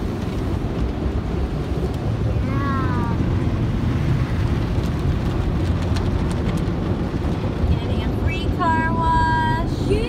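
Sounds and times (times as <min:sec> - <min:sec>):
car wash water spraying: 0:00.0 - 0:10.0.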